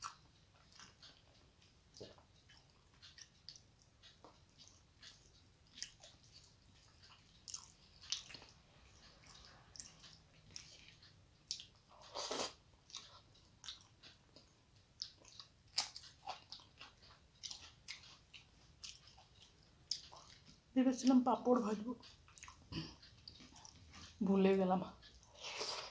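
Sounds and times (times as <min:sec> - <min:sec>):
person chewing food: 0:00.0 - 0:21.2, 0:22.0 - 0:24.2, 0:25.0 - 0:25.9.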